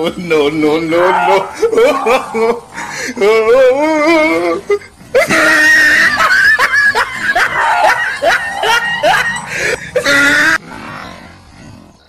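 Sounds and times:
person screaming: 0.9 - 6.5, 7.2 - 10.6
laughter: 1.3 - 3.4, 4.0 - 10.6.

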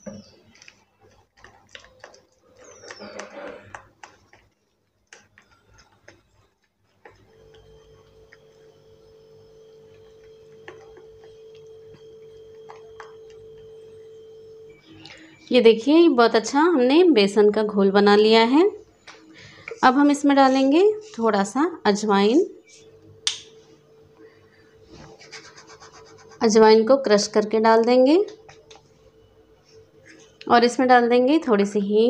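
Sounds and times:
hand beating batter in a bowl: 0.0 - 7.7
steady humming tone: 7.0 - 32.0.

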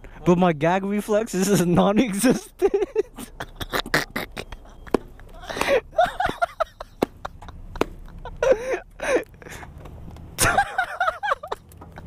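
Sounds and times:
motorcycle engines idling: 4.3 - 12.0.

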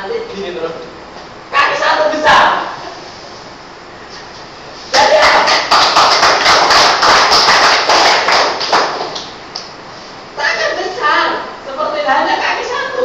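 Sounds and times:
audience applauding: 5.0 - 9.4.

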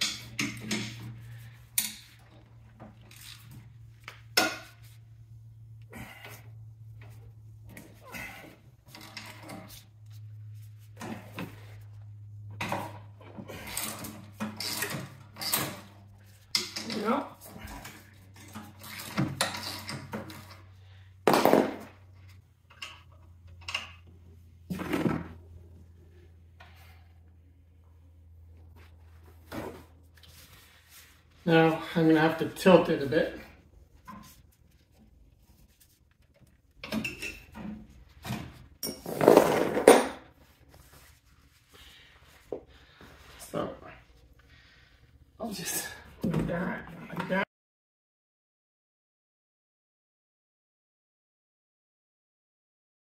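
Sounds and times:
steady low hum: 0.0 - 19.2
wrench clinks and rustles: 38.8 - 40.2.

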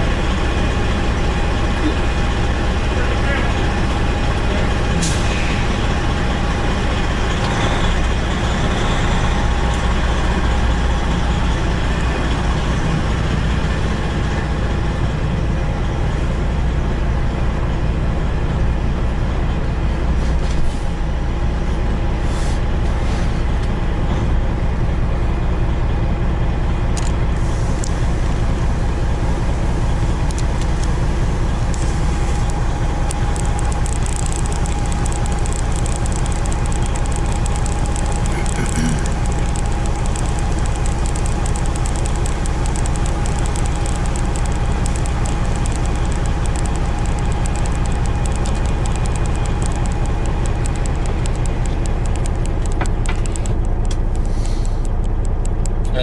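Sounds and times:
truck diesel engine running: 0.0 - 56.0
steady hum: 29.2 - 55.0.

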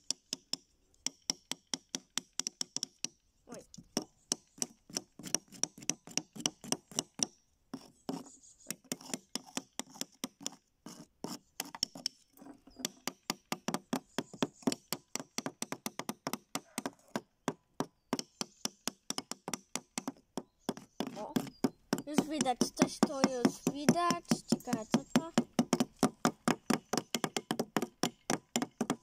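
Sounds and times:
hammers tapping steel chisels: 0.0 - 3.1, 18.2 - 29.0.

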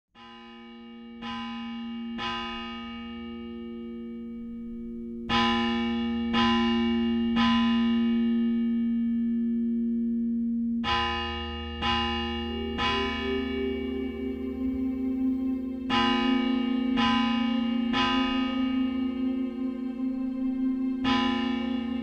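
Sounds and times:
steady sustained hum: 1.5 - 22.0
bell tones ringing: 10.8 - 22.0.

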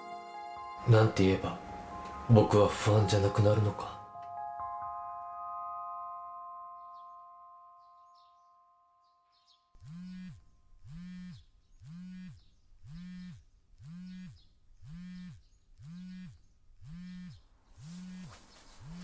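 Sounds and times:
phone vibrating against bed: 9.3 - 19.0
bedding rustling: 17.6 - 19.0.

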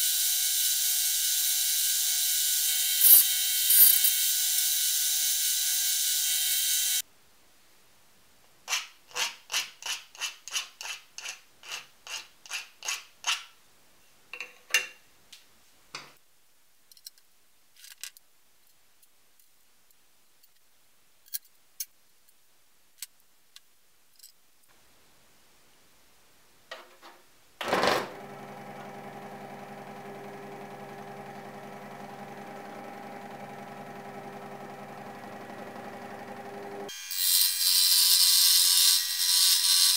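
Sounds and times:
scroll saw humming: 27.6 - 37.2.

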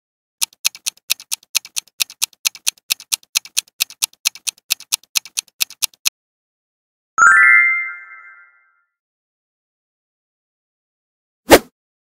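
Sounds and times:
fast clock ticking: 0.4 - 6.1.

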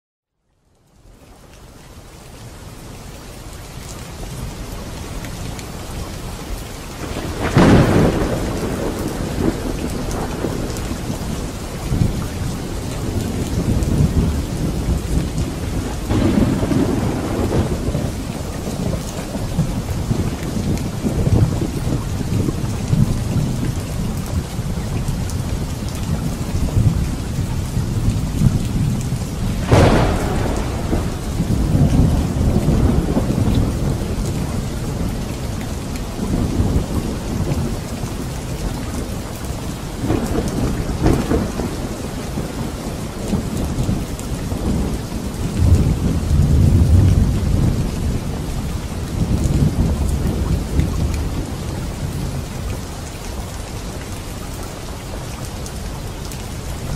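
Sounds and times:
steady rain: 0.3 - 56.9
sharp thunderclap: 7.0 - 11.2, 13.0 - 23.1, 28.0 - 35.1, 40.0 - 48.4
low rolling thunder: 7.0 - 55.1.

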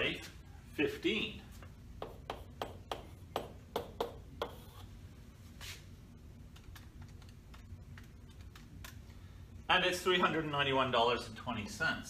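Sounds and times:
chalk tapping on chalkboard: 2.0 - 4.9.

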